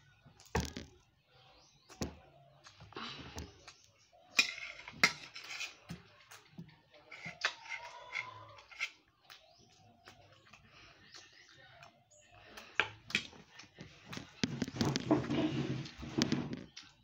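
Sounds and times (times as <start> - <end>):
metal spoon scraping ceramic plate: 4.3 - 5.9, 7.1 - 9.0.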